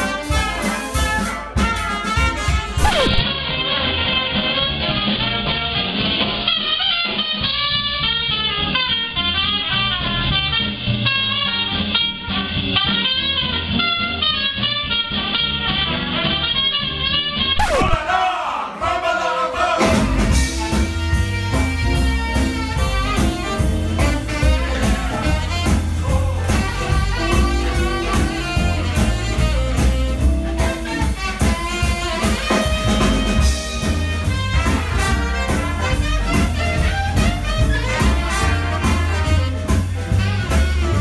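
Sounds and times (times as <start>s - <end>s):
hot jazz band playing: 0.0s - 18.2s, 18.8s - 41.0s.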